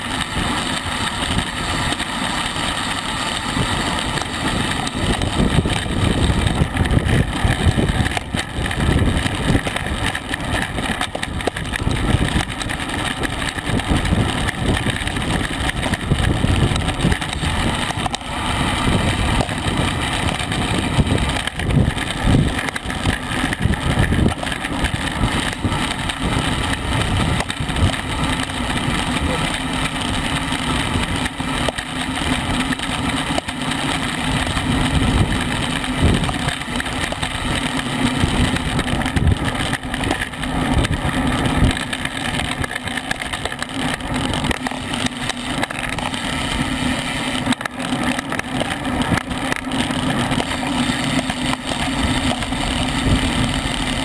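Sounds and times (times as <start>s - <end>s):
wind buffeting microphone: 4.7s - 29.4s, 38.2s - 43.0s.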